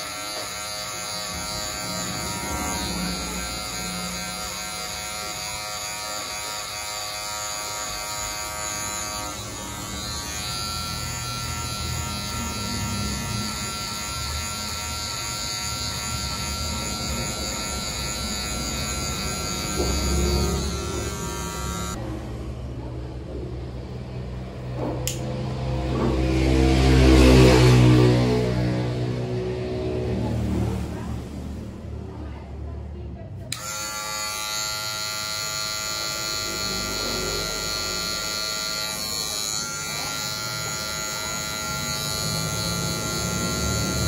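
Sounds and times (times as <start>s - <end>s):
electric hair clippers humming: 0.0s - 22.0s, 25.0s - 26.1s, 33.5s - 44.0s
sharp click: 25.0s - 25.3s.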